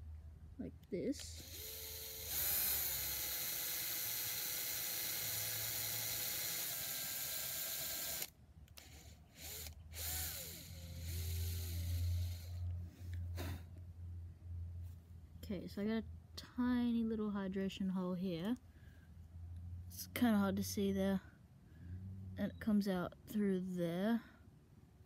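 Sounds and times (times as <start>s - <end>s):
drill motor whining: 1.4s - 12.6s
low hum: 8.2s - 22.8s.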